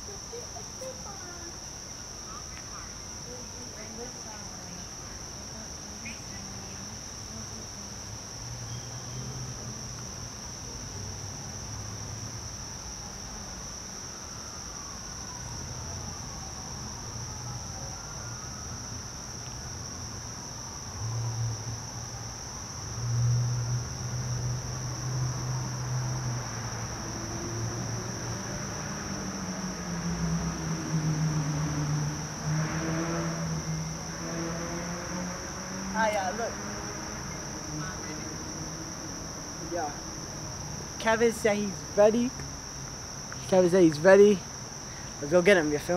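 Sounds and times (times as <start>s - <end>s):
crickets chirring: 0.0s - 45.9s.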